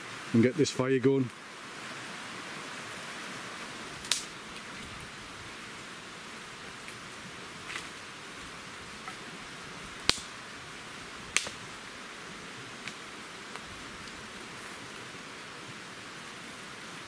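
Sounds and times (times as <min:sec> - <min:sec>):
steady background hiss: 0:00.0 - 0:17.0
dry sticks snapping: 0:04.0 - 0:04.3, 0:10.0 - 0:10.3, 0:11.3 - 0:11.6.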